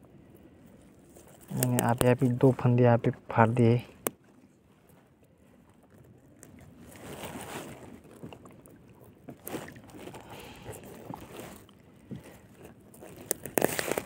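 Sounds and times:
net rustling and scraping: 0:06.8 - 0:08.3, 0:09.4 - 0:14.0.

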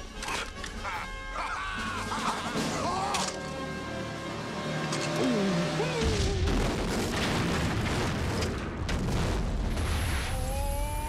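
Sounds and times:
explosion bangs: 0:06.2 - 0:10.3
deep rumbling explosion: 0:06.2 - 0:10.4.

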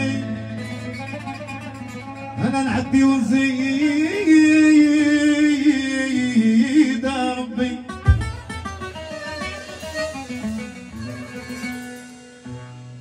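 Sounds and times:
man singing: 0:00.0 - 0:01.2, 0:02.3 - 0:08.4
violin and strings: 0:00.0 - 0:05.4, 0:07.4 - 0:13.0
deep drum stroke: 0:08.0 - 0:11.1.

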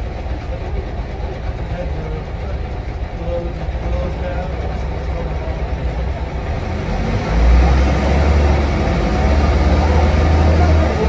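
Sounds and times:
bus diesel engine drone: 0:00.0 - 0:11.0.

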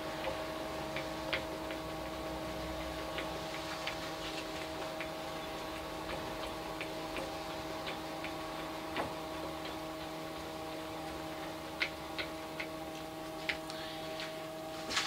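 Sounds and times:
milling table feed ticking: 0:00.0 - 0:14.2
faint hum: 0:10.4 - 0:15.0.

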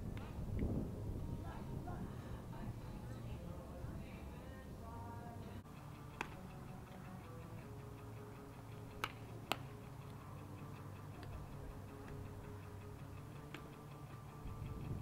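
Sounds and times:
sharp cracks of baseball bats: 0:06.1 - 0:06.6, 0:08.9 - 0:09.7, 0:13.4 - 0:13.8.

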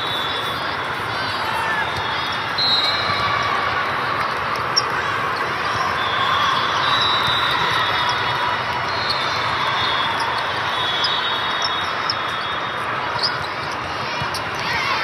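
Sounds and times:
hubbub of players and spectators: 0:00.0 - 0:15.0
shoe squeaks on court: 0:10.0 - 0:14.6.

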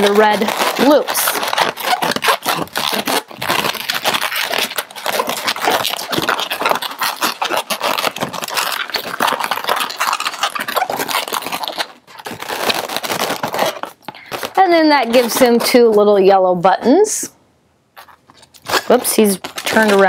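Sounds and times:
balloons rubbing and squeaking: 0:00.0 - 0:16.4, 0:17.9 - 0:20.0.

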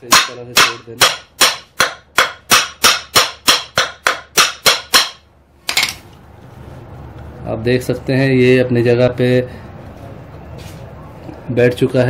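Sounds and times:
hammer striking metal wheel: 0:00.0 - 0:06.0.

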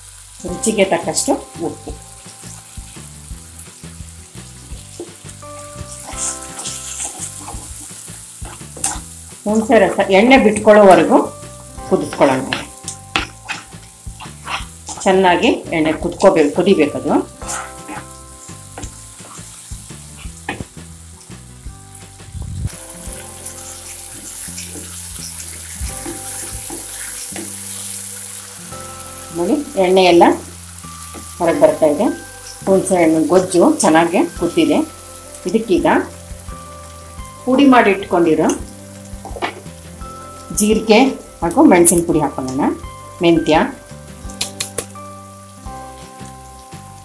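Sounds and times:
food sizzling in hot oil: 0:00.0 - 0:47.0
background music with bass line: 0:00.2 - 0:47.0
spatula stirring in pan: 0:04.0 - 0:21.5, 0:22.8 - 0:28.8.

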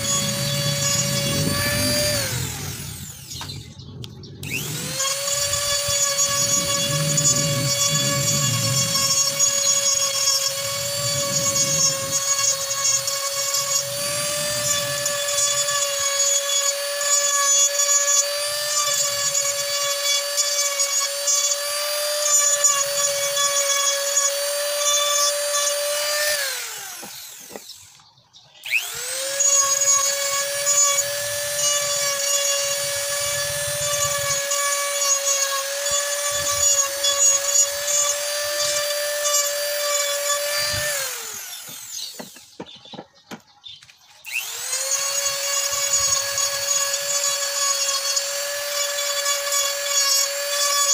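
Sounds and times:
rotary tool grinding wood: 0:00.0 - 0:50.9.

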